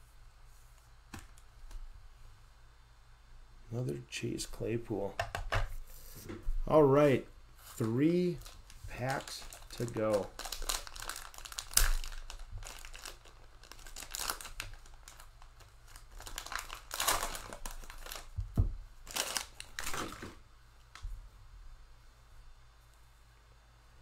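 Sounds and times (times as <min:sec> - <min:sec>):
cellophane wrapper crinkling: 0:07.6 - 0:20.4.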